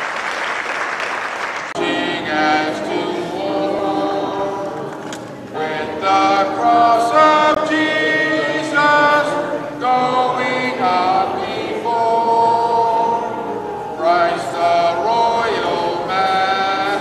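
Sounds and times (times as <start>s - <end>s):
group singing a hymn: 1.7s - 17.0s.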